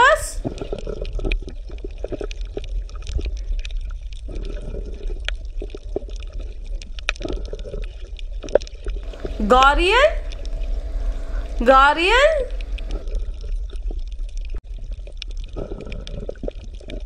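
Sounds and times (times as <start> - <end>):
small clicks and splashes: 0.4 - 9.1, 12.7 - 17.0
creek water gurgling: 9.0 - 9.4, 10.2 - 11.6
low rumble: 9.0 - 13.9.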